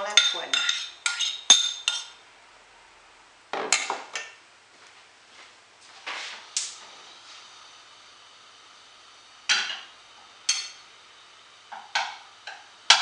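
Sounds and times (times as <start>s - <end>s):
metal spoon clinking saucepan: 0.1s - 2.2s, 10.5s - 10.8s.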